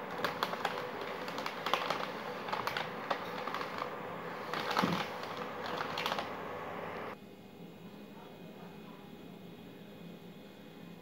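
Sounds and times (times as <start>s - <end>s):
plastic wrapper crinkling: 0.0s - 6.6s
faint steady hum: 0.0s - 11.0s.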